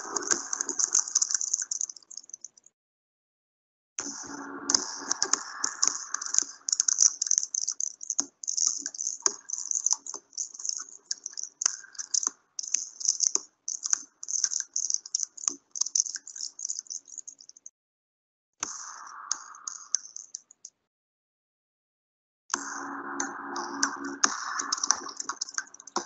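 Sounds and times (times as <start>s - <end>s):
dry rattling with sharp clicks: 0.0s - 2.6s, 6.2s - 17.7s.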